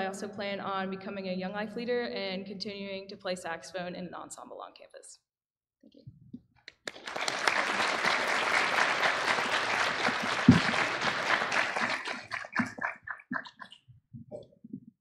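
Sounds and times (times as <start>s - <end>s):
audience applauding: 6.7s - 13.7s.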